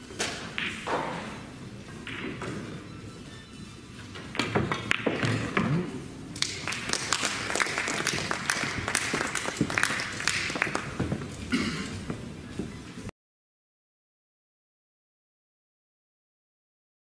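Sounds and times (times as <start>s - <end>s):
pool balls clicking: 0.1s - 2.7s, 4.1s - 12.7s
audience clapping: 6.4s - 11.0s.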